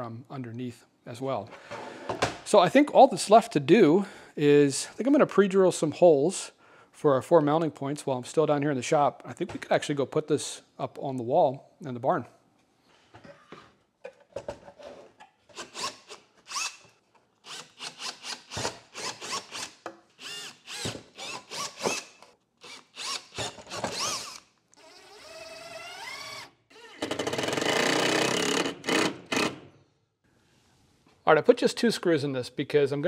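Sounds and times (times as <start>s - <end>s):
cordless drill whining: 17.5s - 27.3s.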